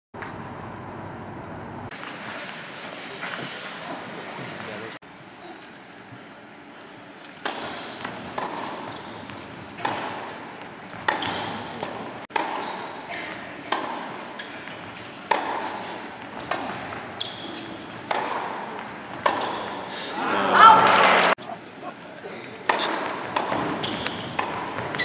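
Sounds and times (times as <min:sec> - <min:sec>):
tennis ball struck by racquets: 0:07.3 - 0:19.8, 0:22.6 - 0:25.0.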